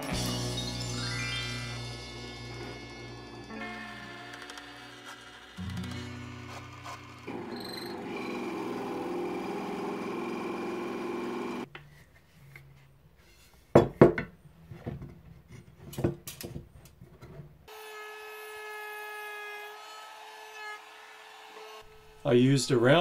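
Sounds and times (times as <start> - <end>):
trim router whining: 2.5 - 11.7
drill press boring into wood: 3.6 - 11.7.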